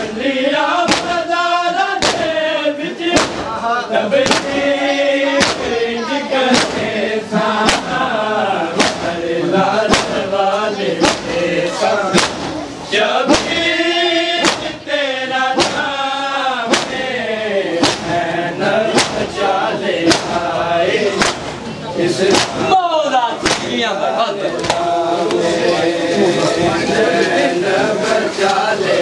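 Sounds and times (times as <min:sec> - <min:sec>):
men chanting a lament: 0:00.0 - 0:29.0
hands beating on chests: 0:00.9 - 0:01.2, 0:02.0 - 0:02.3, 0:04.2 - 0:04.6, 0:05.4 - 0:05.7, 0:06.5 - 0:06.9, 0:07.6 - 0:08.0, 0:08.7 - 0:09.1, 0:09.8 - 0:10.2, 0:11.0 - 0:11.4, 0:12.1 - 0:12.5, 0:14.4 - 0:14.8, 0:15.6 - 0:15.9, 0:16.7 - 0:17.0, 0:17.8 - 0:18.2, 0:18.9 - 0:19.4, 0:20.0 - 0:20.4, 0:21.2 - 0:21.6, 0:22.3 - 0:22.8, 0:23.4 - 0:23.8.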